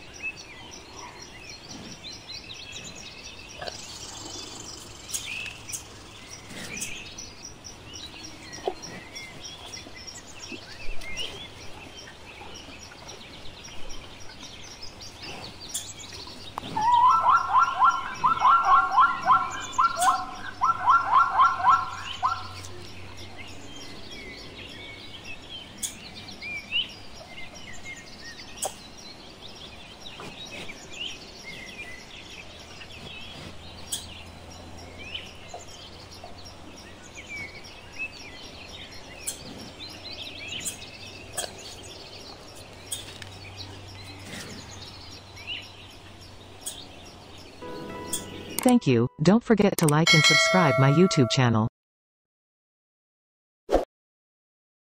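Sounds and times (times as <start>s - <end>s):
small birds chirping faintly: 0.0s - 49.1s
zebra barking call: 16.8s - 22.7s.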